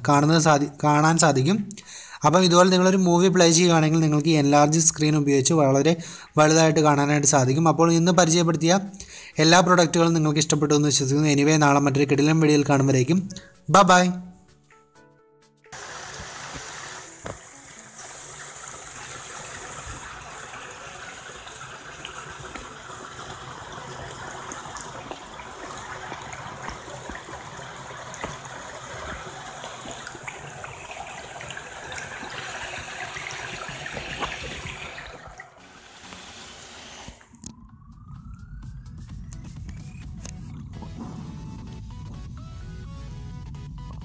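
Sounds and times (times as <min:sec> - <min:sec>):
shallow water splashing: 0:15.8 - 0:36.3
rising tone: 0:35.6 - 0:43.6.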